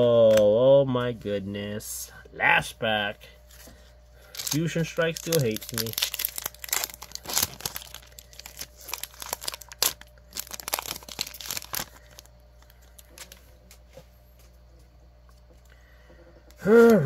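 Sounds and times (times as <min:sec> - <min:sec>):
foil wrapper tearing and crinkling: 0:04.3 - 0:13.4.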